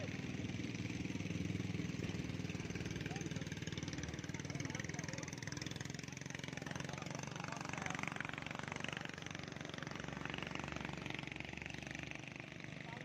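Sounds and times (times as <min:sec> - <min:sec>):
faint voices: 0:00.0 - 0:09.3
outboard motor running: 0:00.0 - 0:13.0.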